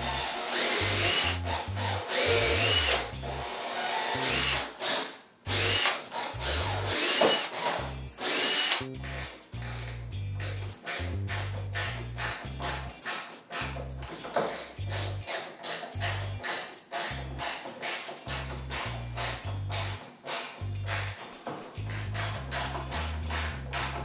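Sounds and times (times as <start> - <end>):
cordless drill boring into wood: 0.0 - 9.8.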